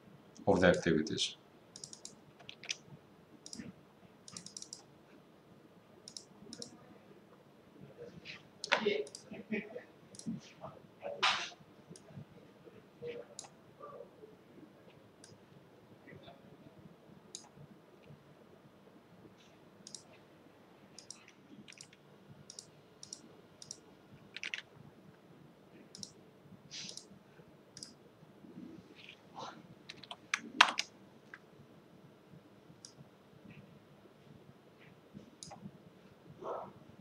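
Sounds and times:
computer mouse clicks: 0:01.7 - 0:02.8, 0:03.4 - 0:04.9, 0:06.0 - 0:06.8, 0:08.6 - 0:09.3, 0:10.1 - 0:10.4, 0:15.2 - 0:15.4, 0:17.3 - 0:18.2, 0:19.8 - 0:20.2, 0:21.0 - 0:24.7, 0:25.9 - 0:27.1, 0:27.8 - 0:28.0, 0:29.9 - 0:31.5, 0:32.8 - 0:33.0, 0:35.2 - 0:35.7
keyboard typing: 0:01.7 - 0:02.8, 0:03.4 - 0:04.9, 0:06.0 - 0:06.8, 0:17.3 - 0:17.6, 0:19.8 - 0:20.1, 0:20.9 - 0:24.7, 0:25.9 - 0:27.1, 0:29.9 - 0:31.4.

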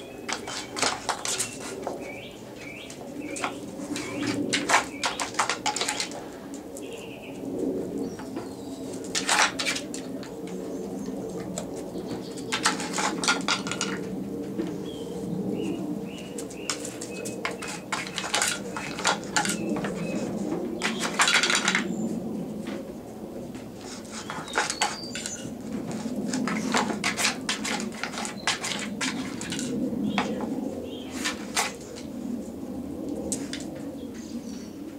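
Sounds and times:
wooden clicks and knocks: 0:12.5 - 0:14.1.

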